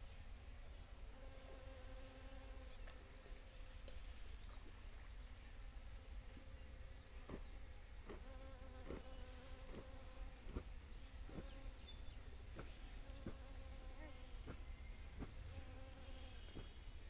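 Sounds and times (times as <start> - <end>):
honeybees humming: 8.0 - 16.9.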